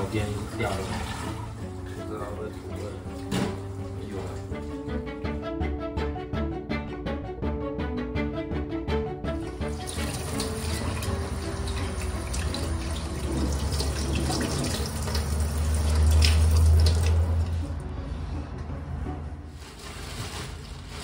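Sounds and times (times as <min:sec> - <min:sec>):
tap water splashing into sink: 0:00.0 - 0:01.5, 0:02.5 - 0:04.5, 0:09.5 - 0:17.6
background music: 0:00.0 - 0:21.0.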